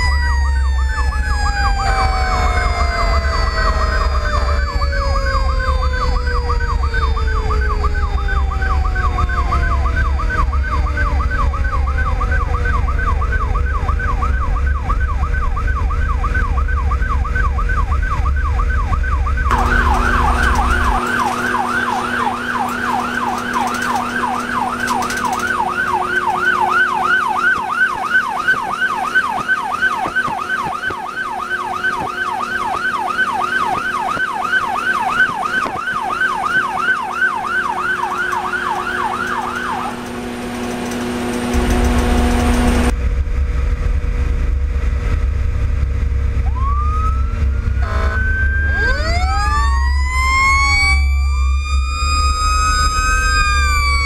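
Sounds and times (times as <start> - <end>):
electronic siren yelping: 0.0 - 42.9, 46.4 - 54.0
siren wail sliding down: 0.0 - 43.0, 46.1 - 54.0
engine and road rumble: 0.0 - 54.0
steady horn note: 47.8 - 48.4.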